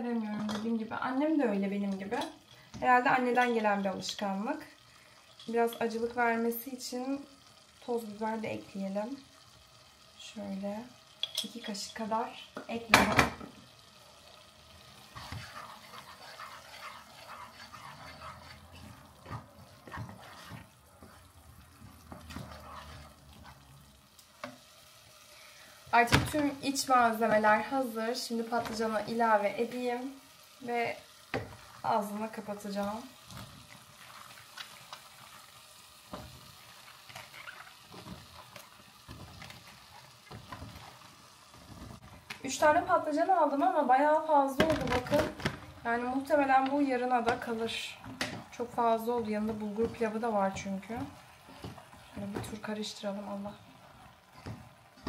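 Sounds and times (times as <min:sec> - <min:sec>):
faint sizzle: 0:00.0 - 0:55.0
wooden spoon stirring thick sauce: 0:14.9 - 0:24.6, 0:33.3 - 0:42.2, 0:46.3 - 0:55.0.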